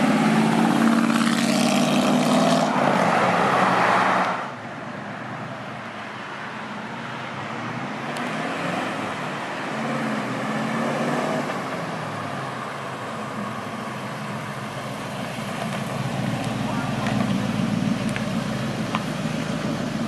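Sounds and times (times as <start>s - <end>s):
road and traffic hum: 0.0s - 20.0s
truck engine approaching: 7.3s - 20.0s.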